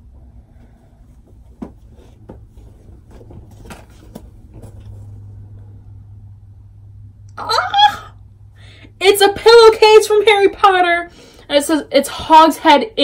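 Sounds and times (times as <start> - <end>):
low steady hum: 0.0 - 13.0
package rustling: 2.7 - 5.1.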